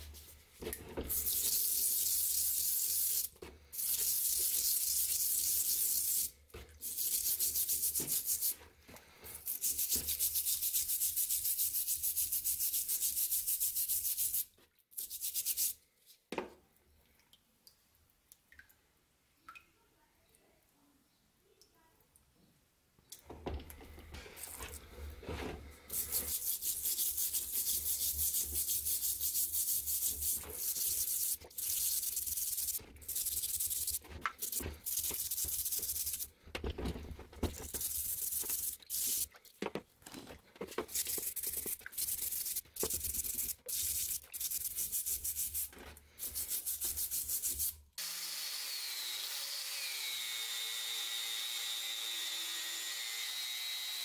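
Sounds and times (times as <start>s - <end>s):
stiff brush scrubbing metal: 24.2s - 36.4s, 40.6s - 47.7s.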